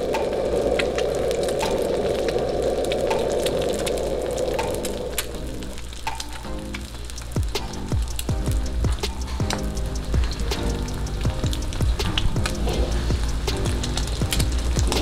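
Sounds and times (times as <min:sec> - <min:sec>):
egg sizzling in hot oil: 0:00.0 - 0:15.0
faint background music: 0:00.0 - 0:15.0.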